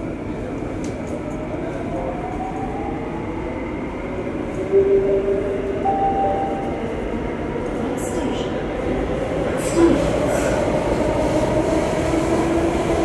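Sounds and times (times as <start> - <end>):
train rumble inside carriage: 0.0 - 13.0
brief higher tones: 4.7 - 7.2.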